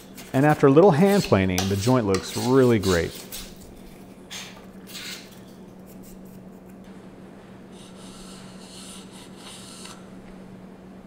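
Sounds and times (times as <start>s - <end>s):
faint steady hum: 0.0s - 11.0s
hand plane scraping wood: 1.0s - 3.2s.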